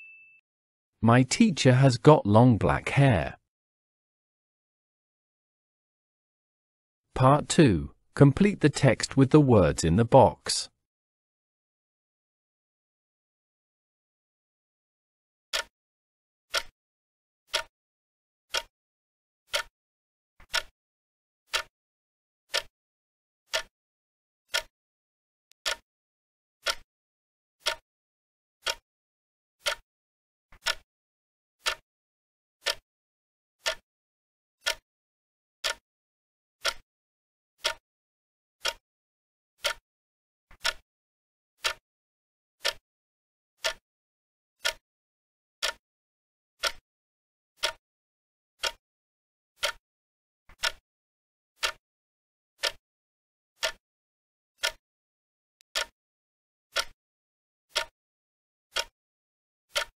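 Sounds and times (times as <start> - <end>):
clock ticking: 15.5 - 15.7, 16.5 - 16.7, 17.5 - 17.7, 18.5 - 18.7, 19.5 - 19.7, 20.5 - 20.7, 21.5 - 21.7, 22.5 - 22.7, 23.5 - 23.7, 24.5 - 24.7, 25.6 - 25.8, 26.6 - 26.8, 27.6 - 27.8, 28.6 - 28.8, 29.6 - 29.8, 30.6 - 30.8, 31.6 - 31.8, 32.6 - 32.8, 33.6 - 33.8, 34.6 - 34.8, 35.6 - 35.8, 36.6 - 36.8, 38.6 - 38.8, 39.6 - 39.8, 40.6 - 40.8, 41.6 - 41.8, 42.6 - 42.8, 43.6 - 43.8, 44.6 - 44.8, 46.6 - 46.8, 47.6 - 47.8, 48.6 - 48.8, 49.6 - 49.8, 50.6 - 50.8, 51.6 - 51.8, 52.6 - 52.8, 53.6 - 53.8, 55.7 - 55.9, 56.7 - 57.0, 57.7 - 57.9, 58.7 - 58.9.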